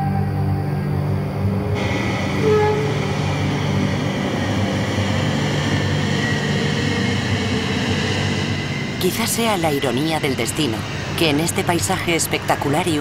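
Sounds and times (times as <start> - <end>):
soft ambient music: 0.0 - 4.4.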